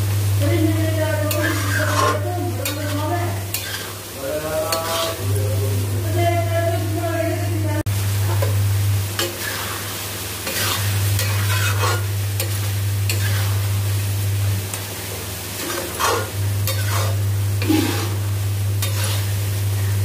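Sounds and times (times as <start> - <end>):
sauce sizzling in a pan: 0.0 - 20.0
steady low hum: 0.0 - 20.0
metal spatula scraping a pan: 1.2 - 5.2, 9.2 - 13.7, 15.6 - 18.2, 18.8 - 19.4.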